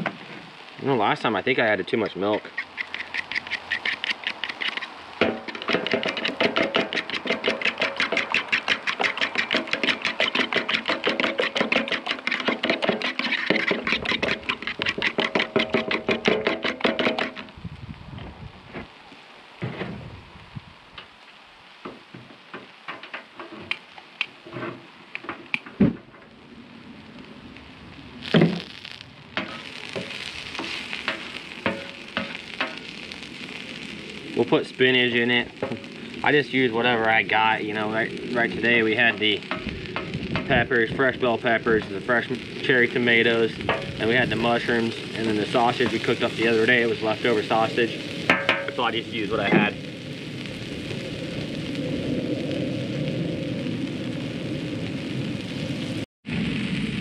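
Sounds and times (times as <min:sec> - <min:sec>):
food sizzling on griddle: 0:00.0 - 0:57.0
spatula scraping and tapping steel: 0:02.3 - 0:17.5, 0:29.4 - 0:32.8
metal spoon beating eggs in bowl: 0:05.5 - 0:17.3.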